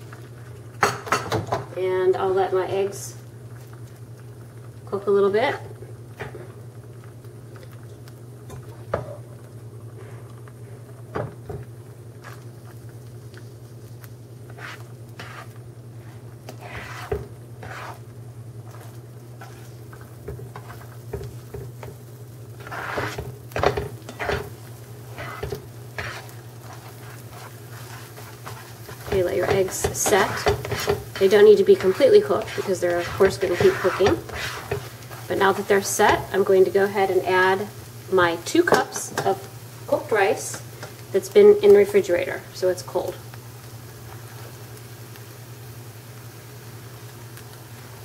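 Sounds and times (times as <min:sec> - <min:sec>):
spatula scraping in a skillet: 0:12.2 - 0:37.9.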